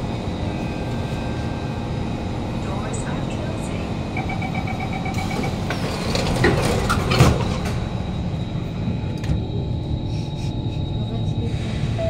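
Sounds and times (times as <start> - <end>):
high hum from train: 0.0 - 12.0
train door chime beeping: 4.1 - 5.7
train doors sliding shut: 5.1 - 8.0.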